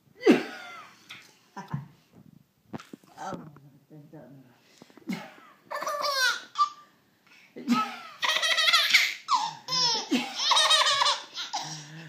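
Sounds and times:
baby laughing: 0:05.7 - 0:06.9, 0:07.7 - 0:12.0.

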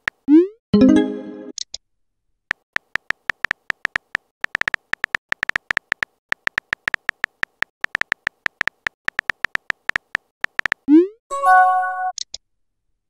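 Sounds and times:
message alert chime: 0:00.8 - 0:01.5, 0:11.3 - 0:12.1
smartphone keyboard taps: 0:02.5 - 0:10.9.

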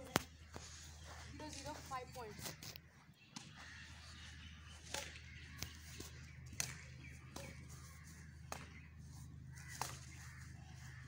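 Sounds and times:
rackets striking shuttlecock: 0:04.8 - 0:07.7, 0:08.4 - 0:08.9, 0:09.6 - 0:10.2.

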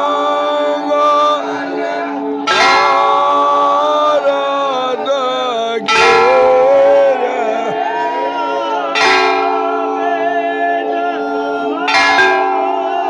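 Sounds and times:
ringing bell strikes: 0:00.0 - 0:04.8, 0:05.8 - 0:07.4, 0:09.0 - 0:13.0
person singing devotional song: 0:00.0 - 0:13.0.

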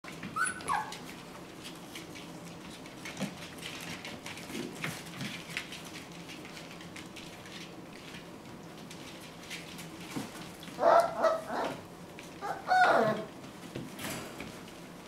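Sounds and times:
small paws scuffling on tile: 0:00.1 - 0:15.0
puppy squealing: 0:00.4 - 0:01.0, 0:10.8 - 0:11.8, 0:12.4 - 0:13.3.

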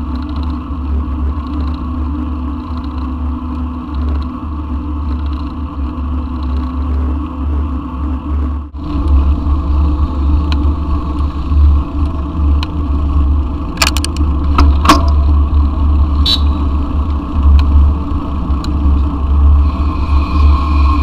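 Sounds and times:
sharp clicks and rattles: 0:13.7 - 0:15.2.

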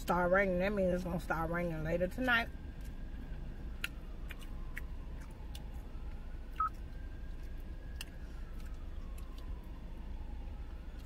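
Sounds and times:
low hum inside car: 0:00.0 - 0:11.0.

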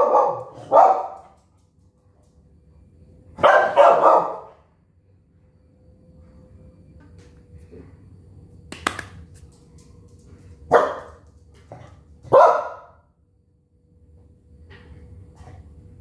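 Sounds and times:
small dog barking: 0:00.0 - 0:01.3, 0:03.4 - 0:04.6, 0:10.7 - 0:11.2, 0:12.2 - 0:13.0.

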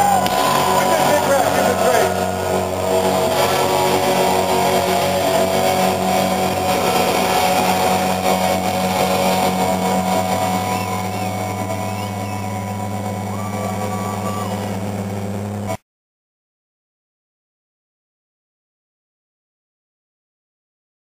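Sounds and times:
electric guitars feeding back: 0:00.0 - 0:15.8.

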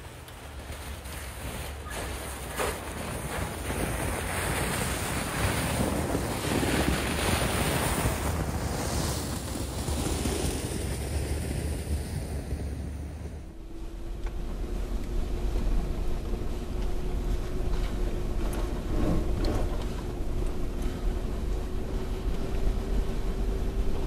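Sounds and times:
tyres crunching through snow: 0:00.0 - 0:13.5.

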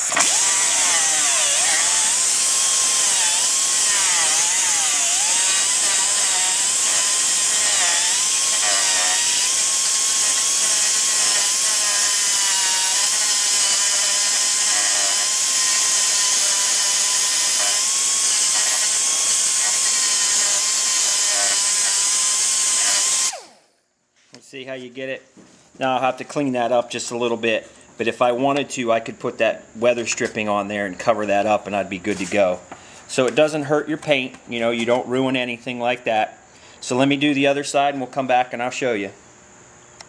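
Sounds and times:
cut-off tool whining: 0:00.0 - 0:23.8.

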